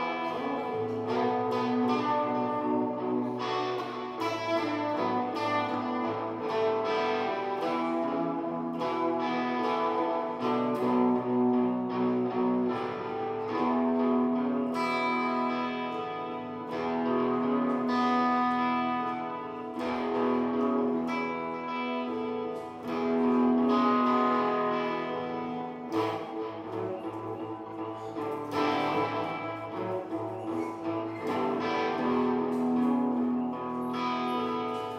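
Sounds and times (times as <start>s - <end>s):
guitar played slowly: 0.0s - 34.9s.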